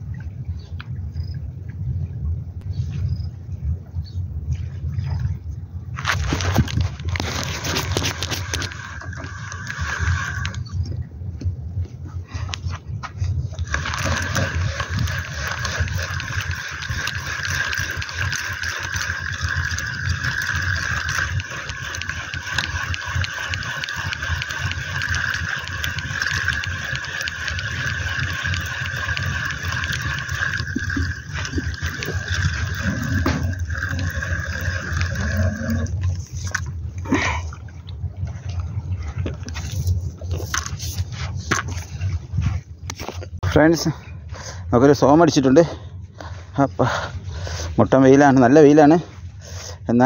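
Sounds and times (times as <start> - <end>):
wind rumbling on microphone: 0.0 - 50.0
fishing reel whirring: 6.1 - 11.0, 13.6 - 37.2.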